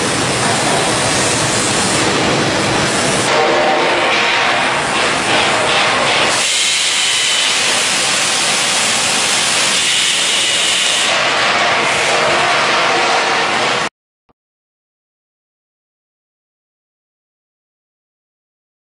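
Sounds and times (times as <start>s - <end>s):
hissing machinery: 0.0s - 13.9s.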